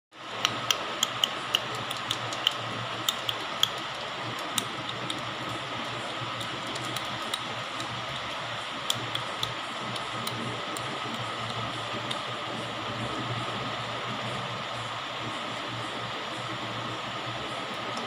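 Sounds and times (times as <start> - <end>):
fish tank hum and water hiss: 0.2 - 18.0
sharp clicks: 0.4 - 5.6, 6.3 - 12.2.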